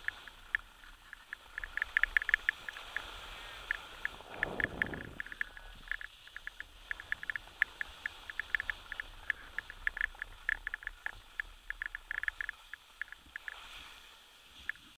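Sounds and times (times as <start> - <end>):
faint low rumble: 2.8 - 13.4.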